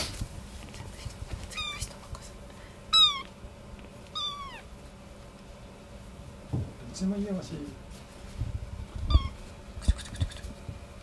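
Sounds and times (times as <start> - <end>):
kitten mewing: 1.6 - 1.8, 2.9 - 3.4, 4.1 - 4.7, 9.1 - 10.6.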